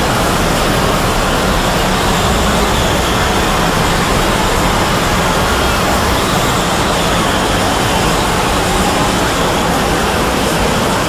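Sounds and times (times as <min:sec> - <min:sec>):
many soundtracks playing at once: 0:00.0 - 0:11.0.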